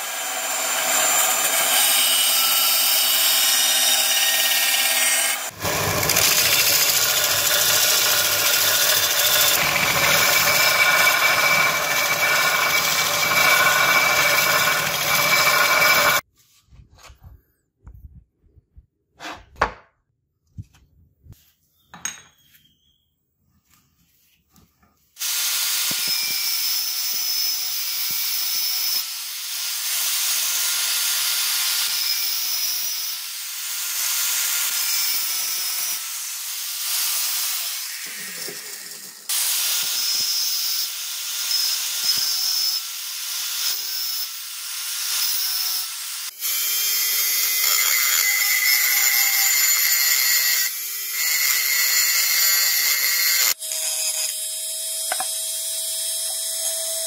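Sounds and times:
angle grinder cutting brass: 0:00.0 - 0:16.2, 0:25.3 - 0:57.0
rotary tool grinding brass: 0:01.1 - 0:16.2, 0:37.0 - 0:39.4, 0:47.1 - 0:57.0.

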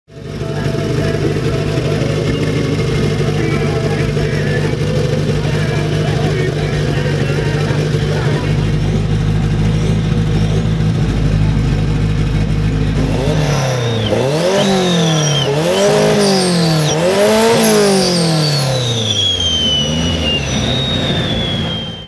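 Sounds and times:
car engine idling and revving: 0:00.1 - 0:22.0
turbo whistle: 0:13.1 - 0:22.0.

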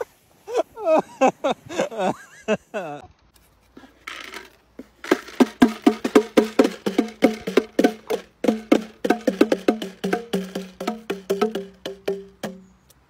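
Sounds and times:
chickens pecking on bongo drums: 0:04.1 - 0:12.8.

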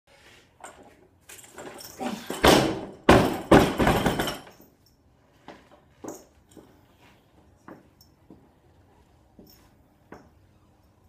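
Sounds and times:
barbell thudding on platform: 0:02.3 - 0:04.5.

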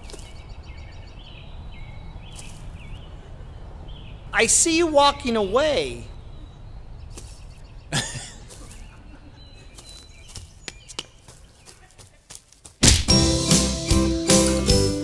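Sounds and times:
faint bird chirps: 0:00.0 - 0:04.4, 0:05.4 - 0:12.0.

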